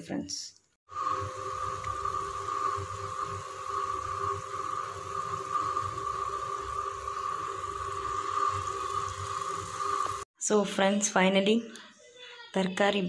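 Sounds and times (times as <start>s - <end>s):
pot boiling and bubbling: 0.9s - 10.3s.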